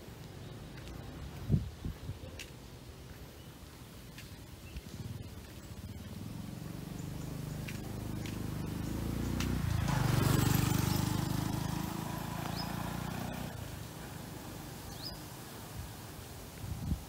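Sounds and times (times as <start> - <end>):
vehicle engine passing by: 4.9 - 15.4.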